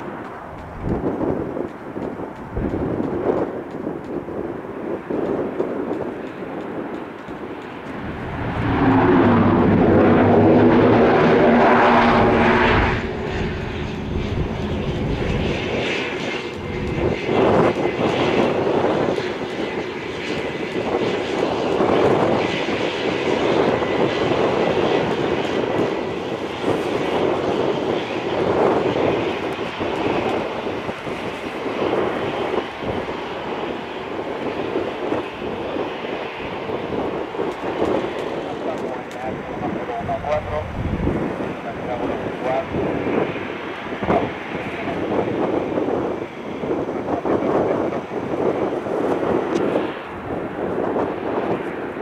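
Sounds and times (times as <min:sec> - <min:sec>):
turboprop propeller drone: 0:00.0 - 0:52.0
faint high engine whine: 0:06.3 - 0:50.4.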